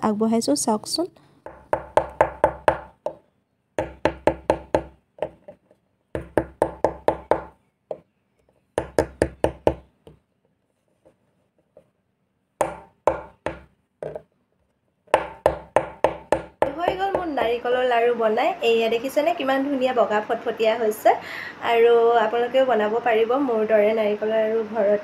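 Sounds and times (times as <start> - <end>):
sweets knocking on wooden table: 1.5 - 3.2, 12.6 - 14.3.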